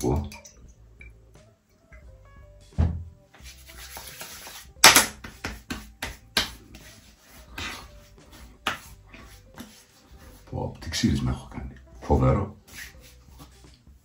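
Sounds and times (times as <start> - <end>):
hands slapping face: 3.9 - 6.9, 8.6 - 9.0.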